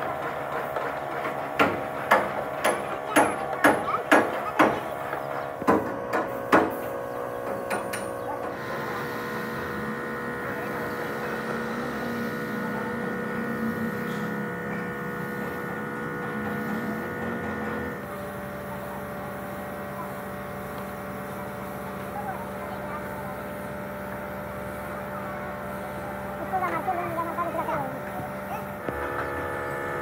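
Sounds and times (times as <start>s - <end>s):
steady machine hum: 0.0s - 30.0s
sharp knocks: 1.2s - 8.2s.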